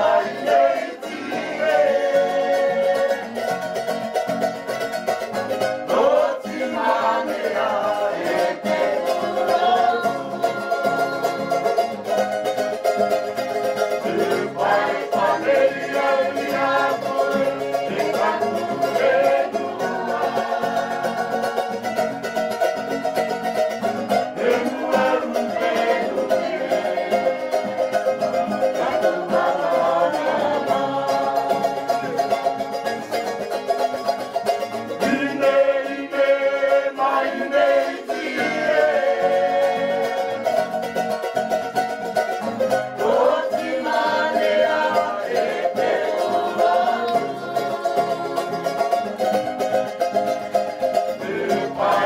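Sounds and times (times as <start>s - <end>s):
person singing: 0.0s - 3.7s, 5.8s - 12.3s, 13.8s - 21.9s, 24.3s - 34.0s, 34.9s - 40.9s, 43.0s - 49.4s, 51.1s - 52.0s
plucked string music: 0.0s - 52.0s.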